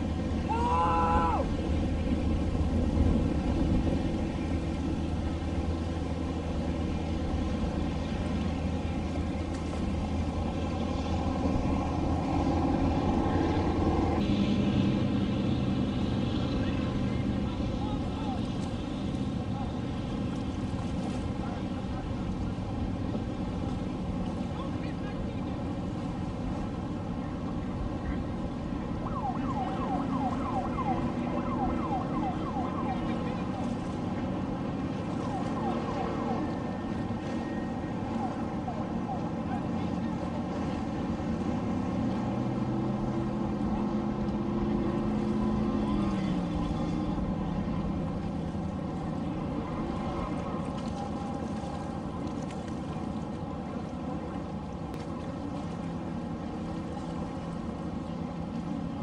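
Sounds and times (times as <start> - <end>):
engines droning: 0.0 - 59.0
motorboats passing: 0.0 - 59.0
water: 0.0 - 59.0
siren chirping: 29.0 - 33.6, 35.2 - 39.3.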